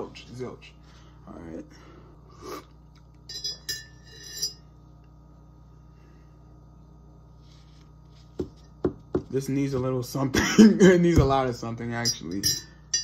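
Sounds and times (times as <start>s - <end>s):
steady low hum: 0.0s - 13.0s
teaspoon clinking against ceramic mug: 12.0s - 13.0s.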